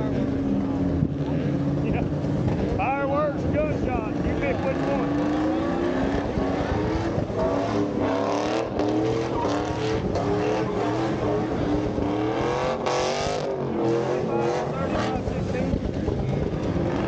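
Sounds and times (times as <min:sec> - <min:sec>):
truck engine revving high: 0:00.0 - 0:17.0
spinning tyres squealing: 0:04.1 - 0:17.0.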